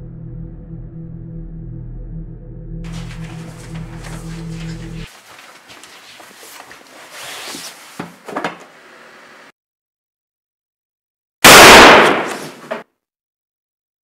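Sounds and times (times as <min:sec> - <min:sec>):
faint rustles: 0:02.9 - 0:08.0.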